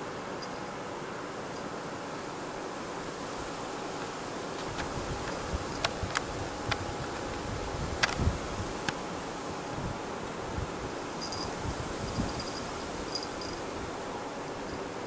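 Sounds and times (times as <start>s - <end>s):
steady hiss: 0.0s - 15.0s
light clicks: 8.0s - 9.0s.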